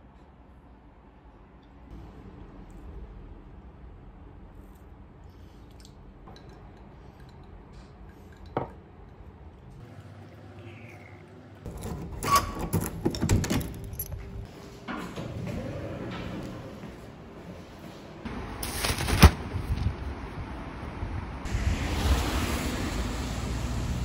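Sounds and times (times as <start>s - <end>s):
door lock and handle clicking: 11.7s - 14.2s.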